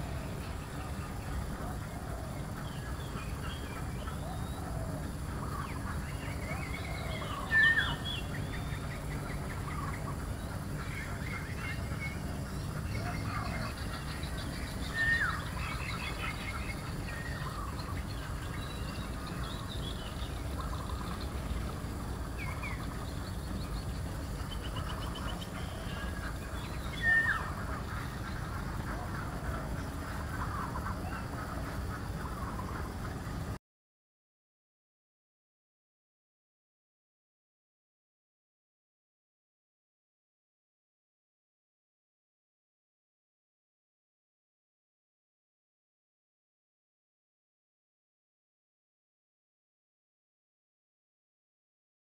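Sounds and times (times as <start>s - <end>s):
birds calling and chirping: 0.0s - 33.6s
low background hum: 0.0s - 33.6s.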